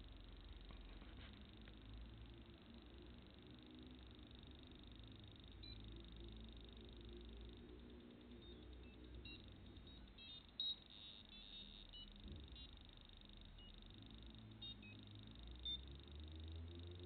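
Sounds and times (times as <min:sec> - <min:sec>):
faint low hum: 0:00.0 - 0:17.0
high-pitched electronic beeps: 0:03.5 - 0:17.0.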